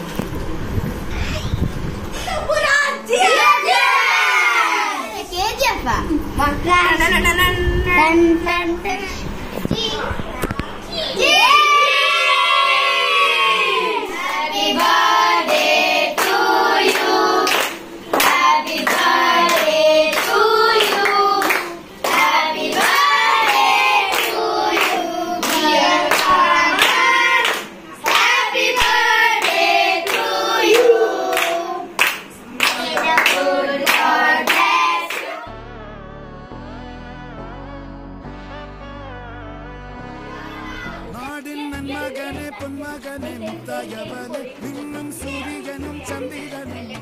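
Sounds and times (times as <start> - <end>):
group singing birthday song: 11.2 - 47.0
people clapping in time: 14.2 - 35.5
quiet background music: 35.0 - 47.0.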